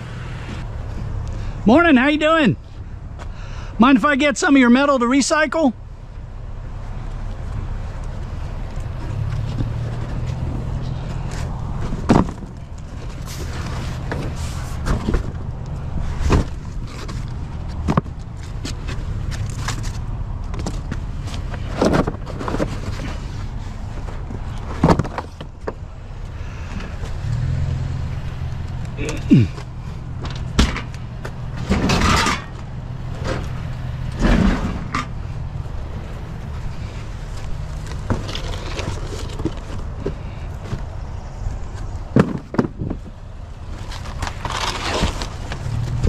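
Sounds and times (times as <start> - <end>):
cardboard boxes thumping: 11.8 - 12.6, 24.7 - 25.4.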